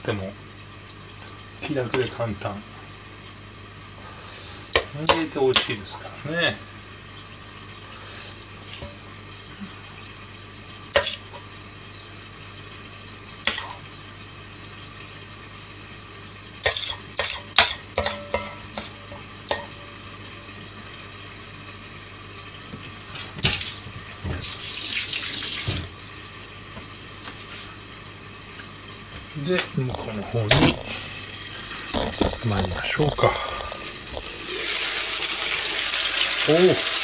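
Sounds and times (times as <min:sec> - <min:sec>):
spoon scraping metal bowl: 0:16.6 - 0:19.7.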